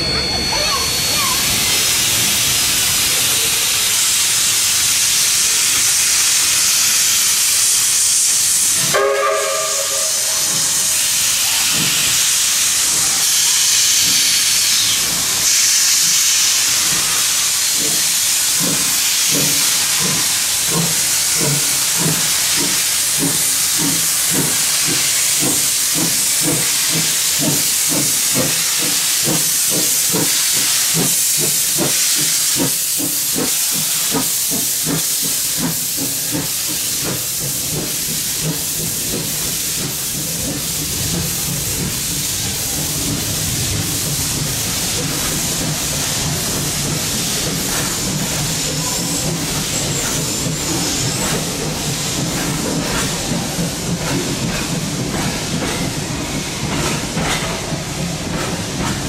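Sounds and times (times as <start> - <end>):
steam hissing: 0.0 - 59.0
steam locomotive exhaust chuffs: 0.0 - 59.0
steam whistle blast: 8.9 - 10.4.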